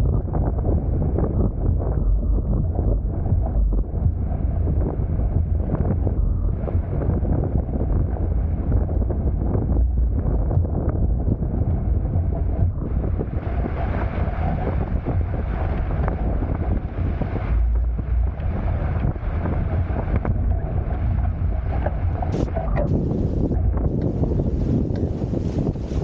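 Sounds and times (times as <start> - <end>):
wind buffeting microphone: 0.0 - 26.0
water rushing past hulls: 6.5 - 26.0.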